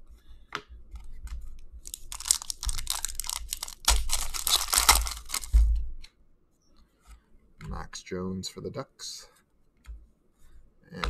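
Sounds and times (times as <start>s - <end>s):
foil wrapper crackling: 1.8s - 5.6s.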